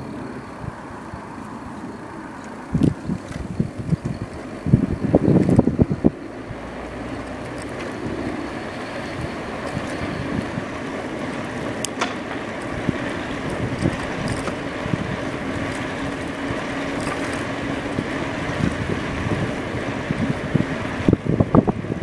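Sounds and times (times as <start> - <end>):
road noise from electric bike: 0.0 - 22.0
wind buffeting microphone: 0.0 - 22.0.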